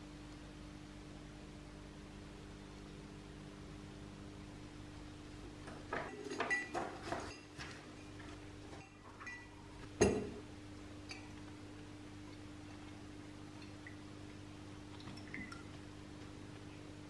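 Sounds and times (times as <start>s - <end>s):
steady low hum: 0.0s - 17.0s
metal bolts clinking into glass dish: 6.0s - 7.6s.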